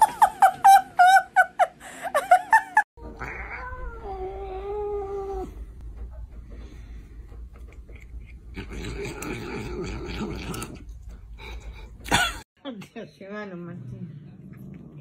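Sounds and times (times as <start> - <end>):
cat yowling: 3.2 - 5.5.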